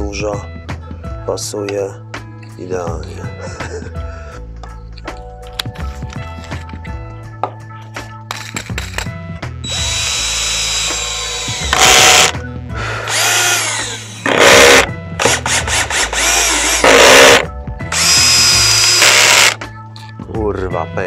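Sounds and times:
power drill driving screws into wood: 0:09.6 - 0:19.6.

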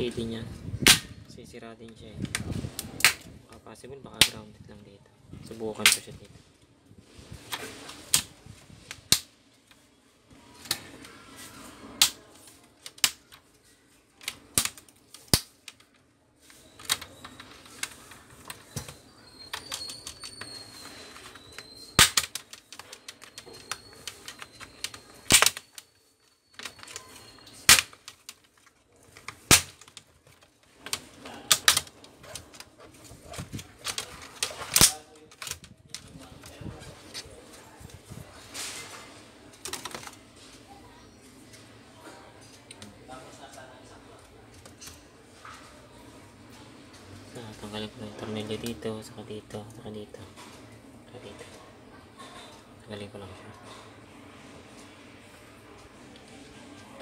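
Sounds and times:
plastic clips snapping loose: 0:22.0 - 0:23.8, 0:25.2 - 0:25.6.

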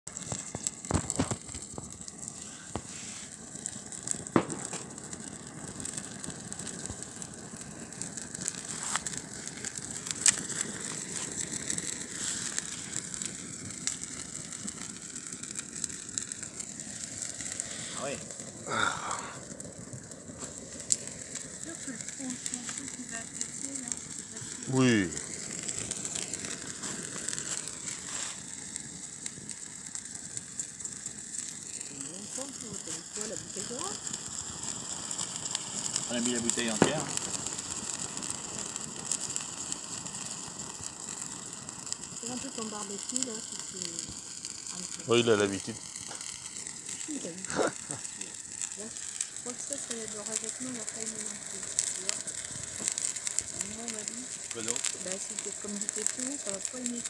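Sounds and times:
flambe fire hissing: 0:00.0 - 0:57.0
sauce sizzling: 0:00.0 - 0:57.0
sharp pops: 0:00.1 - 0:07.1, 0:08.0 - 0:18.4, 0:36.6 - 0:42.1, 0:51.7 - 0:56.9.

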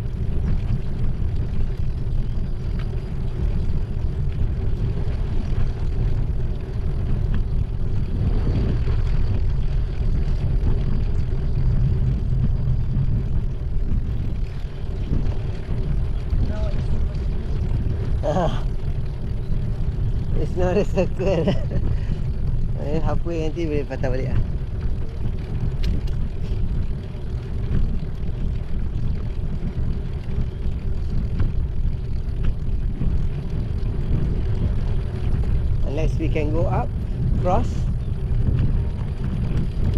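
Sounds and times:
bicycle tyres rolling on concrete: 0:00.0 - 0:39.9
wind buffeting microphone: 0:00.0 - 0:39.9.

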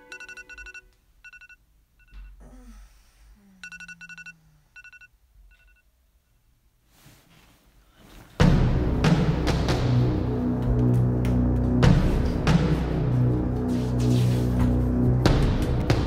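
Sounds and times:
phone alarm beeping: 0:00.0 - 0:02.4, 0:03.6 - 0:05.9.

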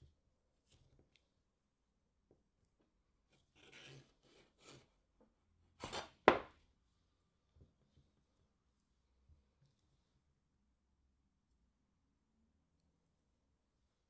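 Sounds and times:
knife scraping through soap: 0:03.3 - 0:05.0, 0:05.8 - 0:06.4
knife knocking on board: 0:06.2 - 0:06.6.

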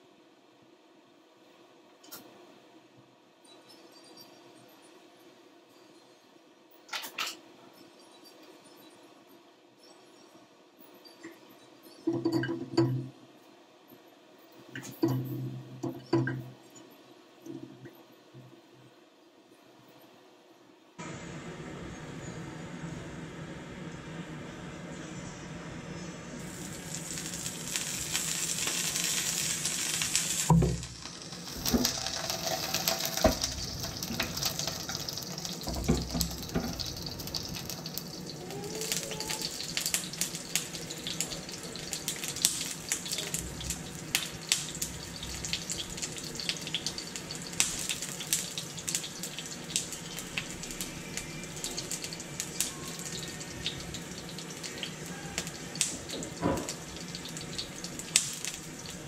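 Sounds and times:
oil sizzling in a frying pan: 0:26.4 - 0:59.0.

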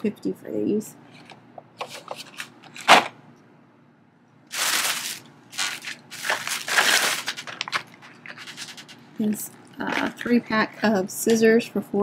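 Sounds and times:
plastic packaging rustling: 0:04.5 - 0:10.4.

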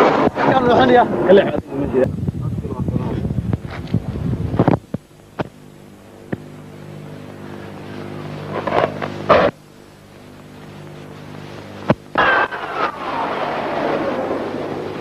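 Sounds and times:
jet aircraft flying overhead: 0:12.2 - 0:15.0
loud rushes of jet noise: 0:12.2 - 0:15.0.

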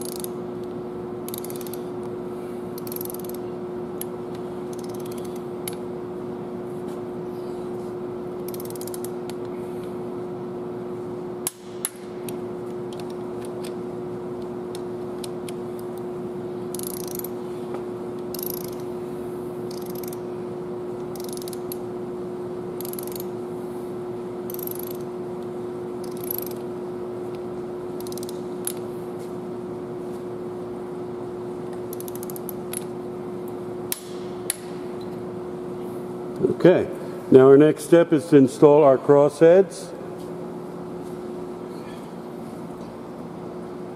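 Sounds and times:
torque wrench ratcheting: 0:00.0 - 0:00.3, 0:01.3 - 0:01.8, 0:02.8 - 0:03.4, 0:04.7 - 0:05.8, 0:08.4 - 0:09.1, 0:16.7 - 0:17.3, 0:18.3 - 0:18.8, 0:19.7 - 0:20.2, 0:21.1 - 0:21.8, 0:22.8 - 0:23.3, 0:24.5 - 0:25.1, 0:26.0 - 0:26.6, 0:28.0 - 0:28.8, 0:31.9 - 0:32.8
steady hum: 0:00.0 - 0:43.9.

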